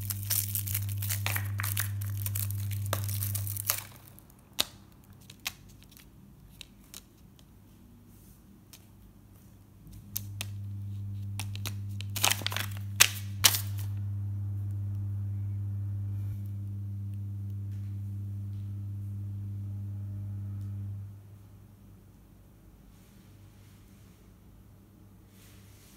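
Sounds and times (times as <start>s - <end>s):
steady low hum: 0.0s - 5.3s, 9.1s - 22.6s
paper sheet crackling: 0.0s - 7.2s, 10.1s - 14.0s.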